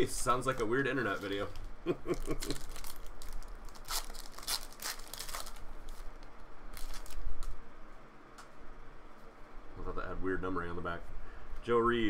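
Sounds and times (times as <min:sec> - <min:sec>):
wrapper tearing and crinkling: 0:00.4 - 0:07.6.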